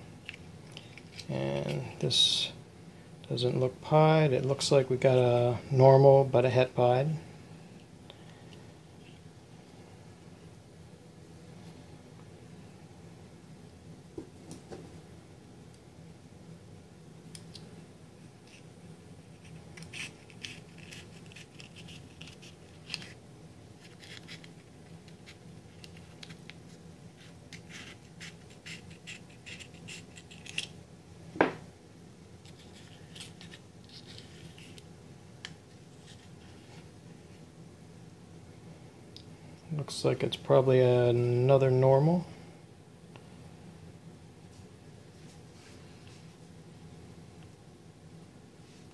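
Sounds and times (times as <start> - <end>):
fingers scratching shells: 19.4 - 23.2, 27.5 - 30.7.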